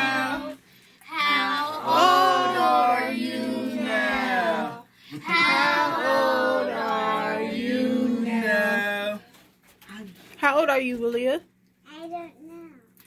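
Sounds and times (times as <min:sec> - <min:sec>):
children and women singing: 0:00.0 - 0:09.2.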